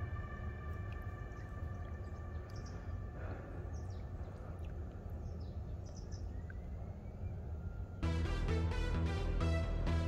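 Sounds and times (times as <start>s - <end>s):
low rumble: 0.0s - 10.0s.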